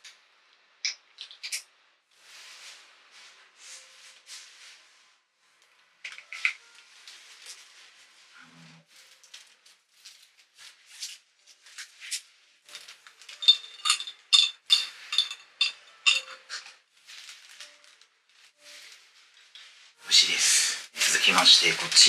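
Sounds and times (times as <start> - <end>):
ice cubes clinking in glass: 13.3 - 16.6.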